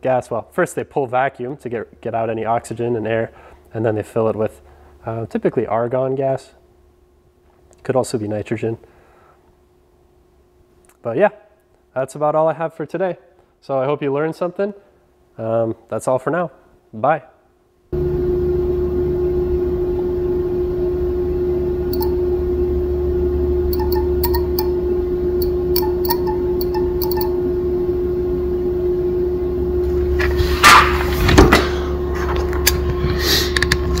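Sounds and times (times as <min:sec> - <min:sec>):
electrical hum of relay coil: 0:18.0 - 0:34.0
relay contacts clicking: 0:21.9 - 0:22.2, 0:23.7 - 0:24.8, 0:25.4 - 0:27.4.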